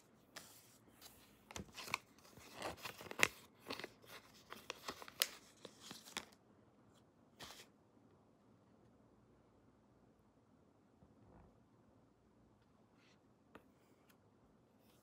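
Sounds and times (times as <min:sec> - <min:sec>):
paper rustling and crinkling: 0:00.3 - 0:06.4.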